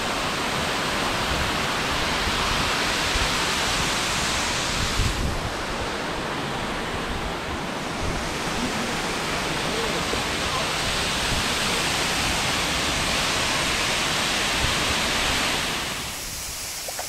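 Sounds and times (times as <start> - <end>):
wind buffeting microphone: 1.2 - 16.8.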